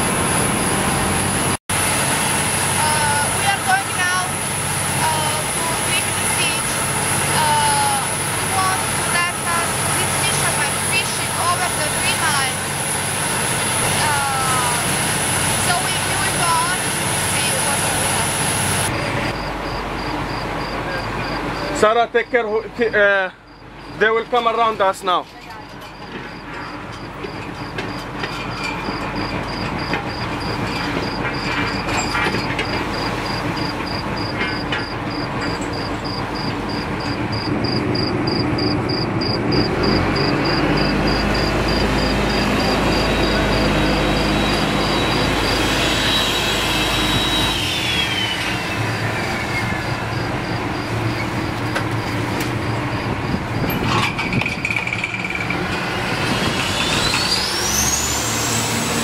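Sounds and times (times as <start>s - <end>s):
high whine: 0.0s - 24.8s, 25.8s - 59.0s
boat engine running: 0.0s - 59.0s
wind: 0.0s - 59.0s.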